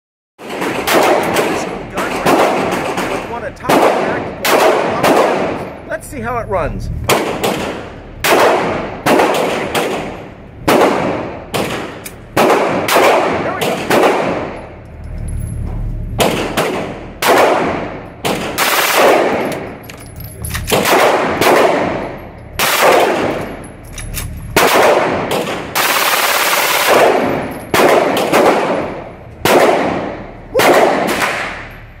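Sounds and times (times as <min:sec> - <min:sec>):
rapid automatic gunfire: 0:00.4 - 0:05.6, 0:07.1 - 0:14.6, 0:16.2 - 0:19.5, 0:20.8 - 0:22.0, 0:22.6 - 0:23.4, 0:24.6 - 0:31.7
pistol gunshots: 0:00.4 - 0:05.8, 0:07.1 - 0:14.6, 0:16.2 - 0:19.7, 0:20.7 - 0:23.6, 0:24.6 - 0:31.9.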